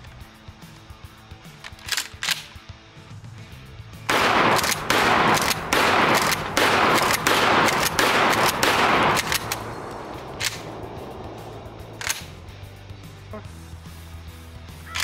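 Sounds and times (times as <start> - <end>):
shotgun shots: 4.1 - 12.8.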